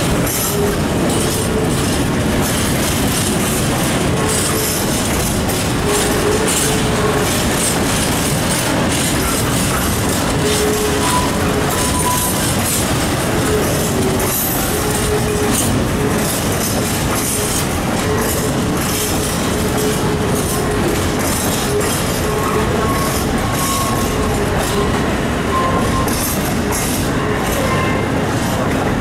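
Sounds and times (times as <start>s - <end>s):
train wheel squeals: 0.0s - 28.9s
train wheels rumbling on rail: 0.0s - 29.0s
wheels clicking over rail joints: 0.0s - 29.0s.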